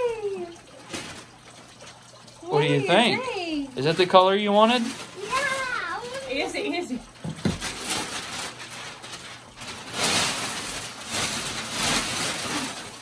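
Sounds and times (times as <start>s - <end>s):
wrapping paper ripping and crumpling: 4.6s - 6.5s, 7.4s - 13.0s.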